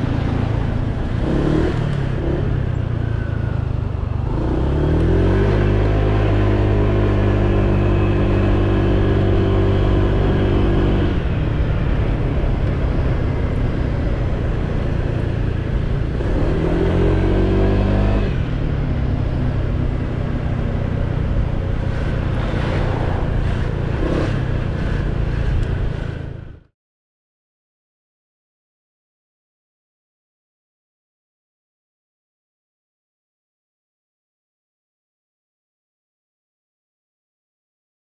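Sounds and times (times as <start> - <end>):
scooter engine running: 0.0 - 26.4.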